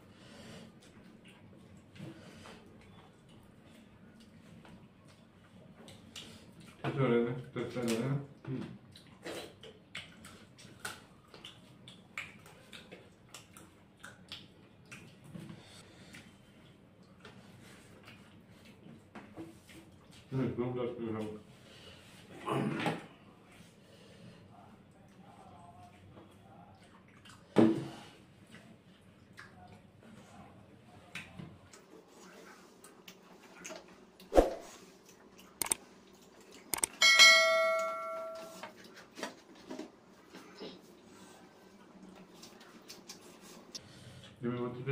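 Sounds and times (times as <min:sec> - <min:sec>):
chewing clicks and smacks: 0:05.0 - 0:06.8, 0:08.8 - 0:15.4, 0:28.5 - 0:29.8, 0:31.1 - 0:31.9, 0:35.0 - 0:37.0
short clicks: 0:35.6 - 0:35.8, 0:36.7 - 0:37.0
bell ding: 0:37.0 - 0:38.6.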